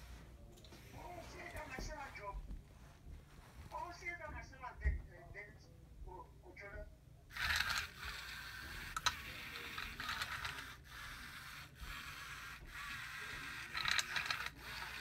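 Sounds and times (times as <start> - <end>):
robot gear motors whirring: 7.4 - 15.0.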